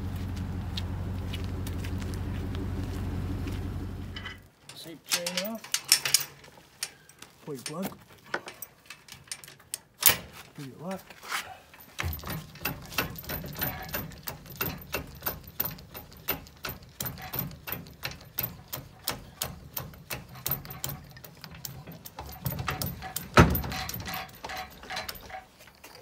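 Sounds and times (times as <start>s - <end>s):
jack gearing clicking: 4.7s - 10.2s, 12.0s - 26.0s
loud metal clunk: 22.2s - 25.3s.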